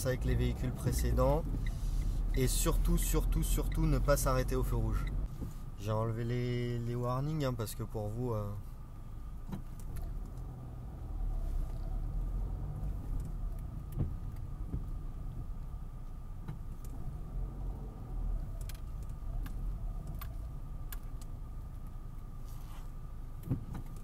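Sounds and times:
car engine and road rumble: 0:00.0 - 0:24.0
light clicks and rattles: 0:18.4 - 0:22.0.

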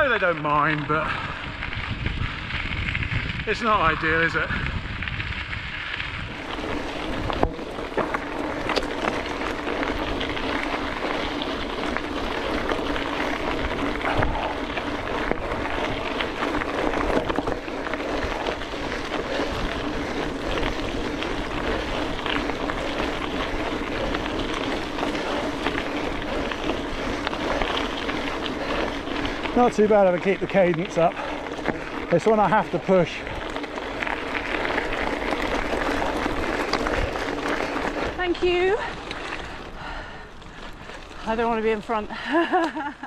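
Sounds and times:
bike tyres rolling over gravel: 0:00.0 - 0:43.0.

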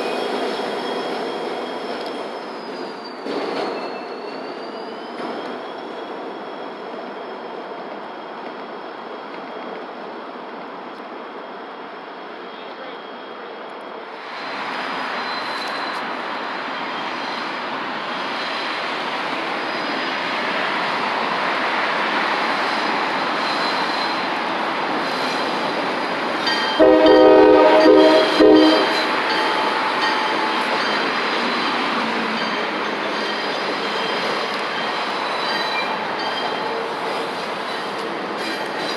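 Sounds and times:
train chord horn blasts: 0:26.8 - 0:29.1.

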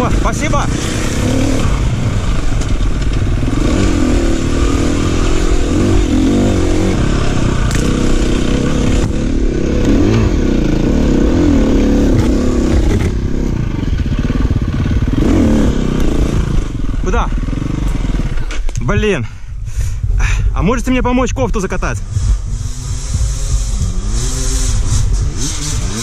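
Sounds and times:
motorcycle engine revving: 0:00.0 - 0:19.1, 0:21.8 - 0:26.0.

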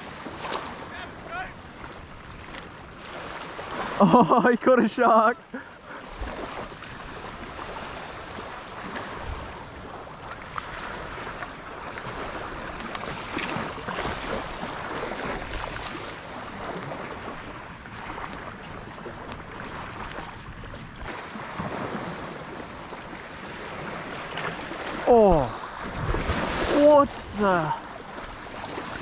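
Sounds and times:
small waves washing on beach: 0:00.0 - 0:29.0
wind on microphone: 0:06.1 - 0:29.0.

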